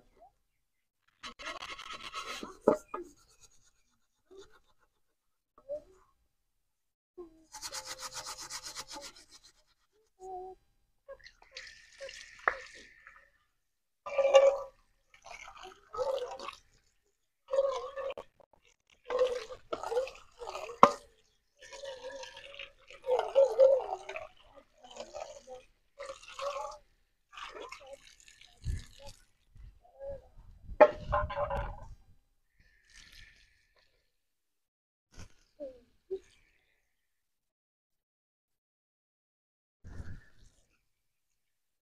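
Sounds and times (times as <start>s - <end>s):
pot being scrubbed: 1.2s - 5.0s, 7.5s - 10.1s
tap water splashing: 12.2s - 13.2s, 20.8s - 21.1s.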